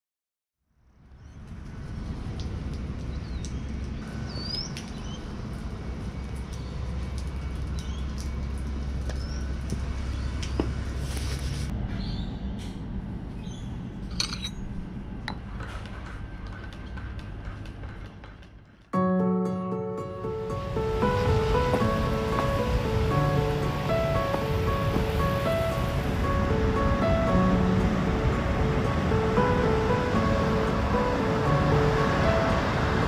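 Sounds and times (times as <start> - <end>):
steady low rumble: 20.5 - 33.0.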